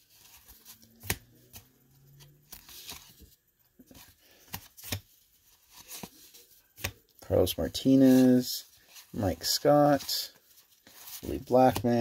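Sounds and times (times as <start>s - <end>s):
cardboard cards sliding: 0.1s - 7.0s.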